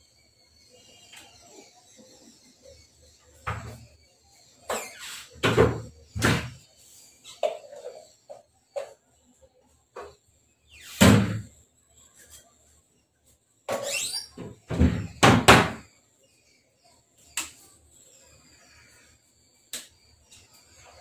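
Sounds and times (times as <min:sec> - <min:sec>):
short squeak: 0:04.6 - 0:05.4, 0:13.7 - 0:14.7
household knocks and bangs: 0:05.4 - 0:06.6, 0:14.4 - 0:15.9.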